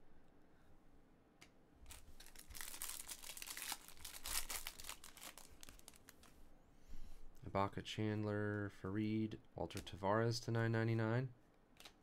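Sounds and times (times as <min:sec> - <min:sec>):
plastic wrapper tearing and crinkling: 0:01.9 - 0:06.3.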